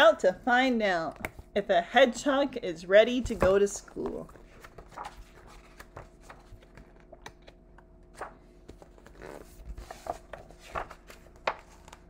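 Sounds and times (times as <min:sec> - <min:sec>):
faint steady hum: 0:00.0 - 0:12.0
book pages rustling: 0:03.2 - 0:12.0.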